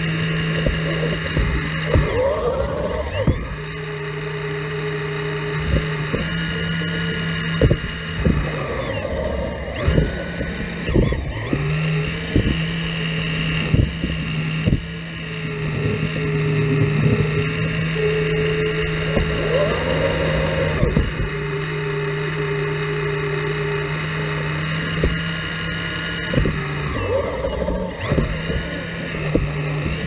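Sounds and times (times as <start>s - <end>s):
excavator diesel engine running: 0.0s - 30.0s
sharp knocks: 7.5s - 8.5s.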